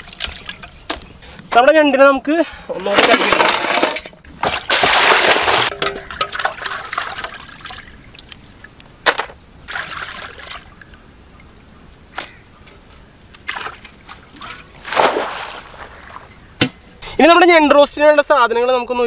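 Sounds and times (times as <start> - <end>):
water splashing and dripping: 0.0 - 1.0, 4.4 - 8.9, 9.6 - 11.6, 13.3 - 16.3.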